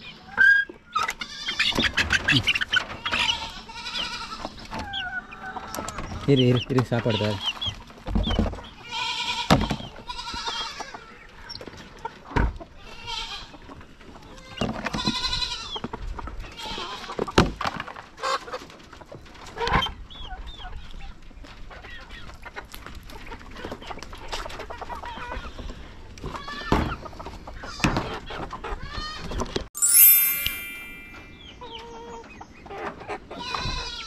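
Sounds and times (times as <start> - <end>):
chickens clucking: 0.0 - 9.0, 17.9 - 28.9.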